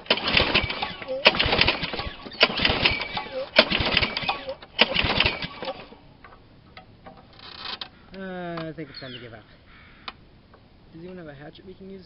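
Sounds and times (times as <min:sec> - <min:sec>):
lawn mower engine cranking: 0:00.0 - 0:06.4, 0:07.0 - 0:08.0.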